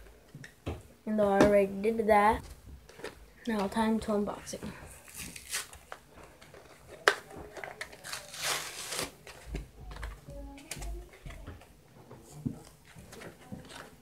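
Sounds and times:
packaging crinkling: 0:05.0 - 0:09.4.

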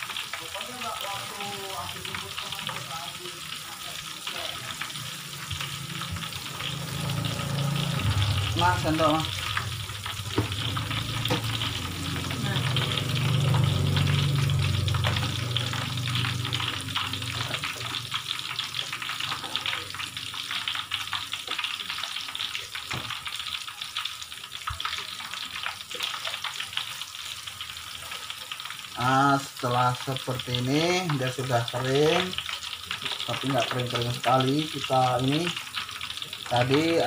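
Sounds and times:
tofu sizzling in hot oil: 0:00.0 - 0:37.0
low rumble: 0:06.2 - 0:18.5.

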